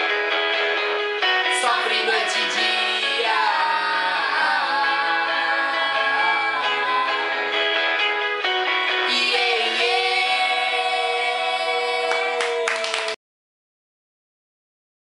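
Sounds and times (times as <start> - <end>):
guitar: 0.0 - 13.2
young voices singing together: 1.5 - 7.8, 9.0 - 13.2.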